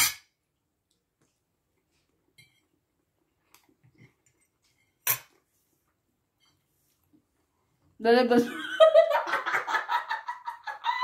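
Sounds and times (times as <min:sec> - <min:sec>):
cutlery clinking on ceramic plate: 0:00.0 - 0:00.4, 0:04.8 - 0:05.4.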